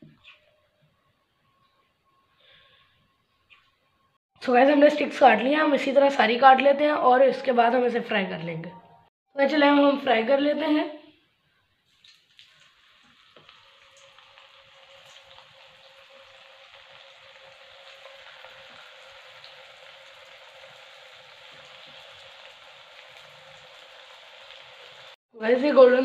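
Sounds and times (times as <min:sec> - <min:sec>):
dough sizzling in hot oil: 0:11.8 - 0:25.2.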